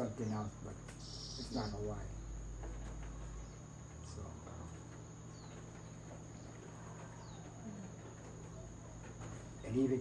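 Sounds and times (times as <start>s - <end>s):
insects trilling: 0.0s - 10.0s.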